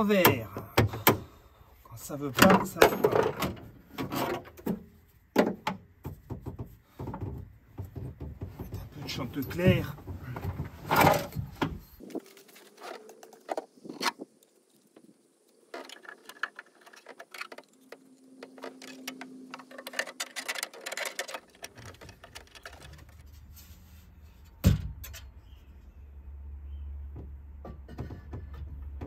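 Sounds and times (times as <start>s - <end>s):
parts being handled clicking: 15.6s - 23.5s.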